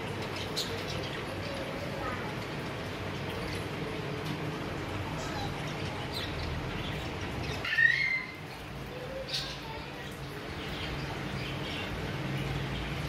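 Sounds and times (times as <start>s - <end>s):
high bird chirp: 5.2s - 13.0s
parakeet squawk: 7.4s - 8.5s.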